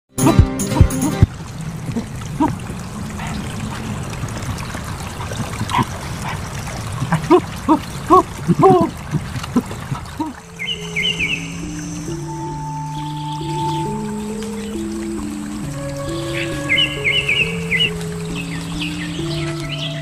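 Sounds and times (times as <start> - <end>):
short pitched gulping: 5.1 - 10.4.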